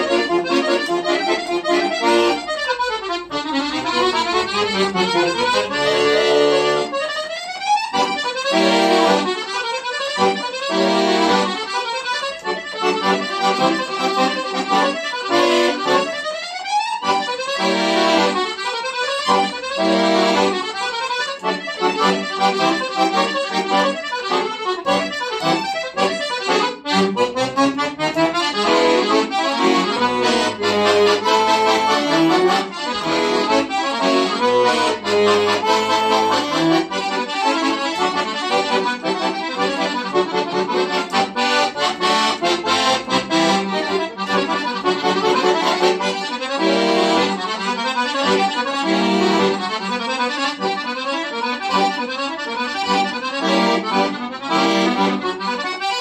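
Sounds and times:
fast accordion piece: 0.0 - 56.0.

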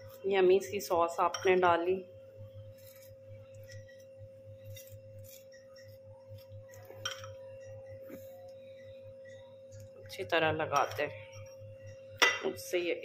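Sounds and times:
faint pulsing low hum: 0.0 - 13.0
high-pitched electrical hum: 0.0 - 13.0
knife scraping and tapping: 2.8 - 7.5.

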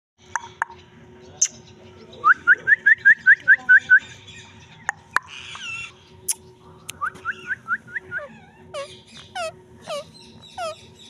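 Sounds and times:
parakeet chirping: 8.1 - 11.0.

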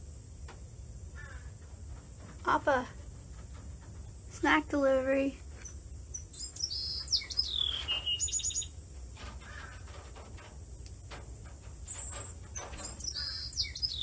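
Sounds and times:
marmosets chirping: 5.6 - 8.8, 11.9 - 14.0.

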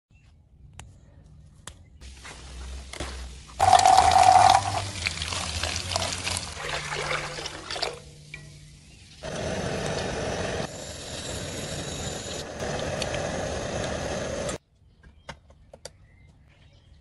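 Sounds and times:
water pouring into metal basin: 3.6 - 9.2
hands splashing leaves in water: 4.7 - 8.0.

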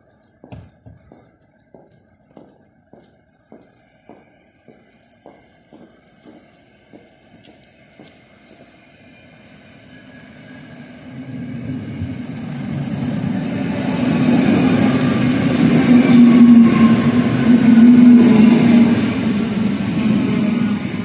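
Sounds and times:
electric train passing: 1.1 - 21.0.

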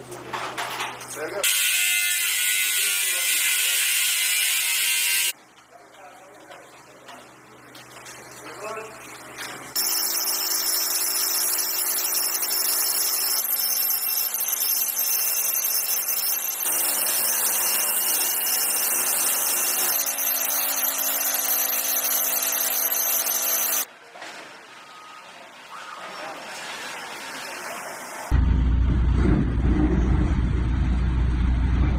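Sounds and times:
rotary hammer drill boring into masonry: 9.8 - 23.9.

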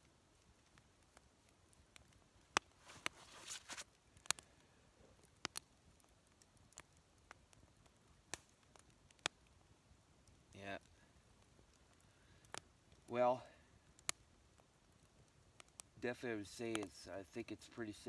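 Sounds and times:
campfire crackling and popping: 0.0 - 18.0
brief rustle: 2.8 - 3.9.

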